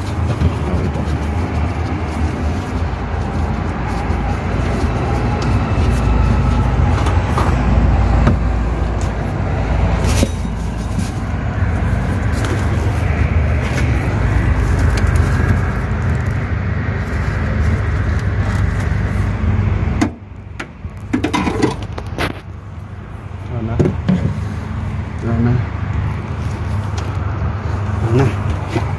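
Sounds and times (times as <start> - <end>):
low mechanical rumble: 0.0 - 28.9.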